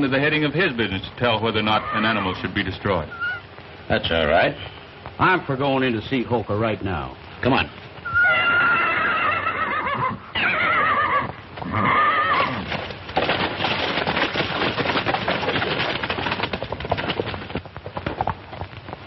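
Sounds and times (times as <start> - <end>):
horses galloping hoofbeats: 0.0 - 6.3, 7.0 - 19.0
horse whinnying: 1.6 - 3.5, 8.0 - 13.0.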